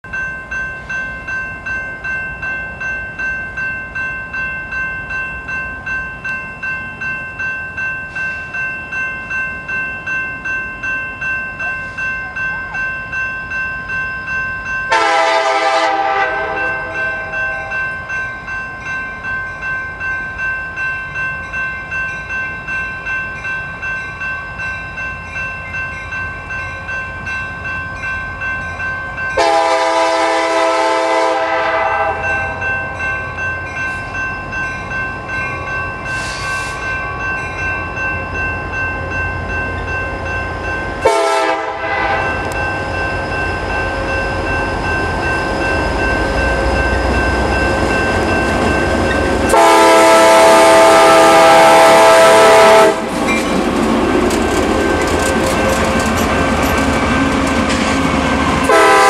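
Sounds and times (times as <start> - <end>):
crossing bell ringing: 0.0 - 59.0
freight train rumble: 0.0 - 59.0
locomotive air horn blast: 14.9 - 17.7, 29.4 - 32.3, 36.2 - 36.8, 41.0 - 42.4, 49.5 - 53.1, 58.7 - 59.0.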